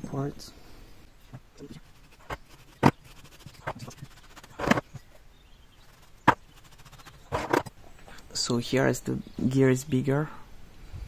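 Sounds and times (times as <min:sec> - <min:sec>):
brief rasp: 0:01.6 - 0:05.0, 0:05.8 - 0:07.7.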